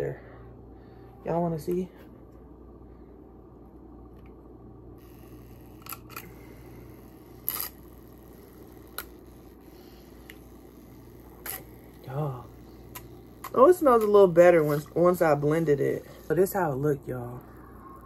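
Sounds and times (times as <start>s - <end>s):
portable blender whirring: 5.0s - 18.0s.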